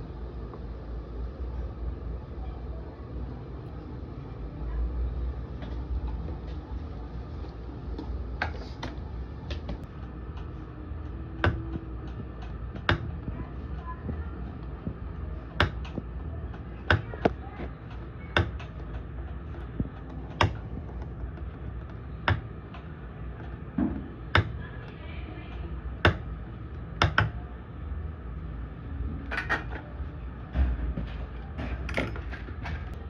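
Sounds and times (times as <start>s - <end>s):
steady low hum: 0.0s - 33.0s
soldering iron tip tapping: 11.4s - 13.2s, 14.9s - 23.5s, 26.0s - 26.3s.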